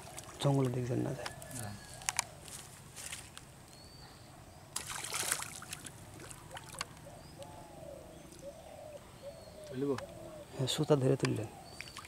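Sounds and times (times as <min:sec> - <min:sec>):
fish splashing in water: 0:04.8 - 0:06.9
faint bird chirps: 0:07.0 - 0:12.0.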